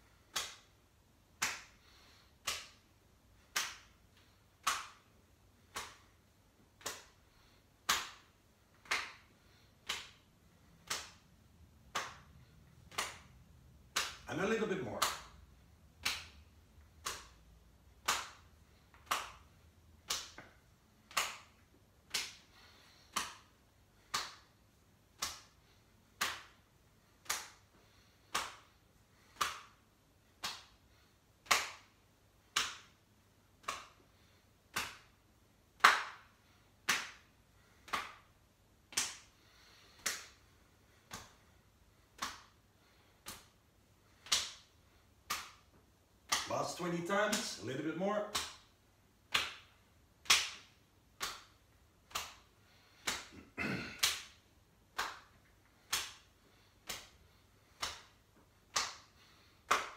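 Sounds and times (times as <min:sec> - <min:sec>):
hands slapping against body: 0:00.0 - 0:59.9.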